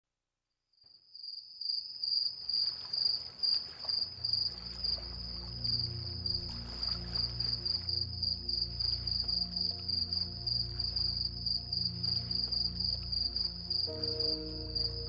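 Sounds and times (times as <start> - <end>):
crickets chirping: 0.9 - 15.0
low music drone: 4.3 - 15.0.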